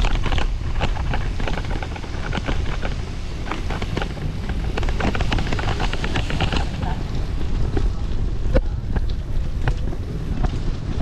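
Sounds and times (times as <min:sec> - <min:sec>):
bicycle rattling over concrete: 0:00.0 - 0:11.0
wind buffeting microphone: 0:00.0 - 0:11.0.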